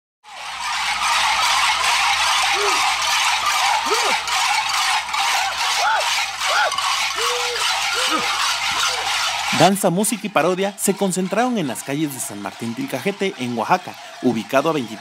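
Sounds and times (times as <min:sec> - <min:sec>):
cowbells clanging: 0:00.6 - 0:15.0
short cries: 0:02.5 - 0:02.9, 0:03.8 - 0:04.3, 0:05.8 - 0:09.1.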